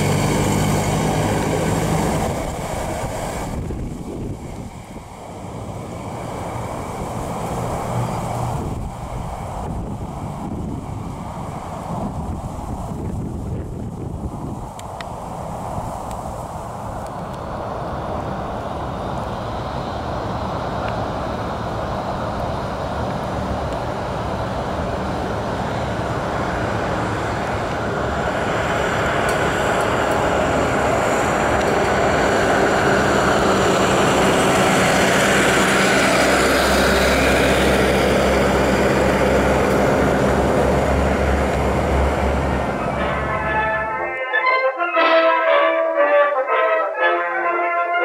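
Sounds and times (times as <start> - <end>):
car engine driving by: 22.8 - 44.6.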